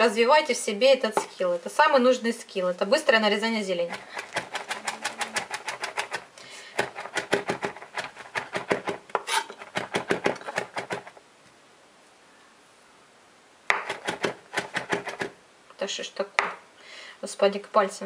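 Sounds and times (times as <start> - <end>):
knife chopping on cutting board: 6.8 - 11.1, 13.7 - 15.3.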